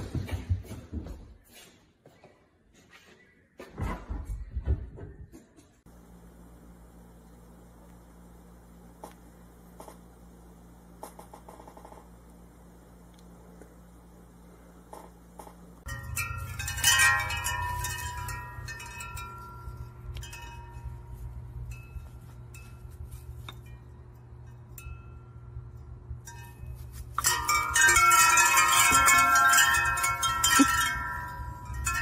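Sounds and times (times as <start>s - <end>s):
low steady rumble: 5.9s - 32.0s
wind chimes jangling: 15.8s - 25.4s, 26.3s - 32.0s.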